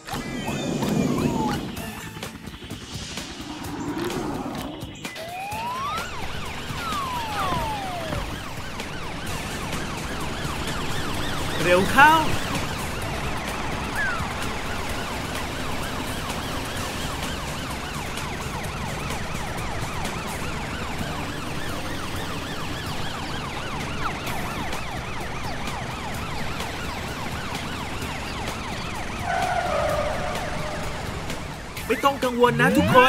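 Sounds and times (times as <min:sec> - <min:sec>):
cartoon sirens wailing: 0:00.0 - 0:33.0
low rumble: 0:02.6 - 0:05.2.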